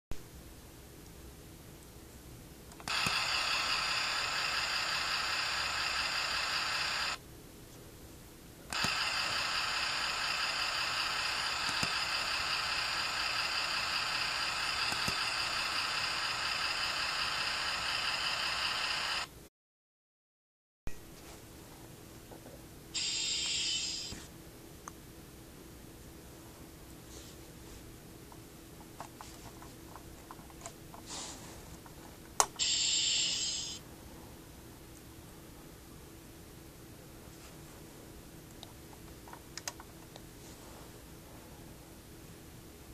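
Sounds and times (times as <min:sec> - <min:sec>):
toy engine sound effect buzzing: 0:02.8 - 0:07.2, 0:08.7 - 0:19.3, 0:23.0 - 0:24.2, 0:32.6 - 0:33.8.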